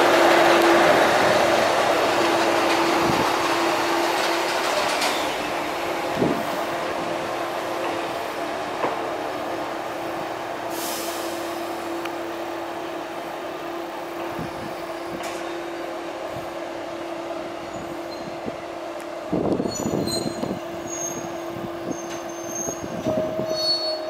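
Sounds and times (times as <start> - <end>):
train wheels rumbling: 0.0 - 24.0
short hiss: 10.7 - 11.6.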